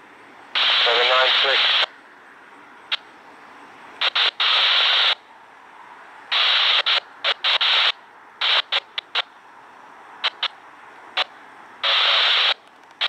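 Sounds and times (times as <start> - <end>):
radio static hiss: 0.0 - 13.0
radio static crackles: 0.5 - 2.0, 4.0 - 5.3, 6.3 - 9.4, 10.2 - 13.0.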